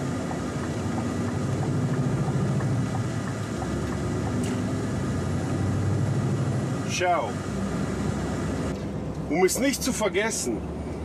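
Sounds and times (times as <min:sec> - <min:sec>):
diesel engine humming: 0:00.0 - 0:11.0
road noise: 0:00.0 - 0:11.0.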